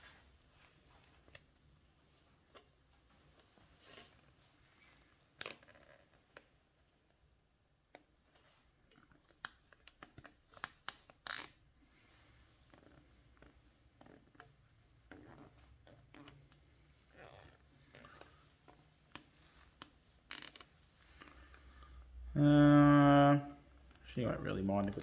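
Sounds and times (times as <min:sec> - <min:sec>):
cable tie zip: 0:10.5 - 0:11.7, 0:17.1 - 0:18.4, 0:20.2 - 0:20.8.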